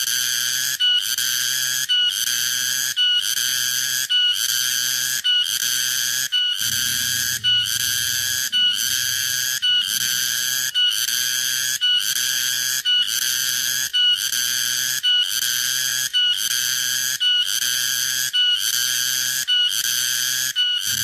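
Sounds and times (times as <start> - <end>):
cicada buzzing whine: 3.5 - 16.0.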